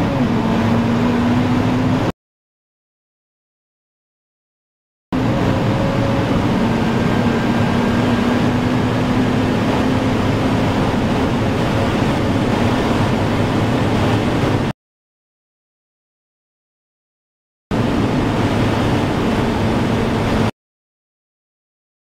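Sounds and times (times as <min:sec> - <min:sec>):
roar of wind and tyres: 0:00.0 - 0:02.1, 0:05.2 - 0:14.8, 0:17.7 - 0:20.5.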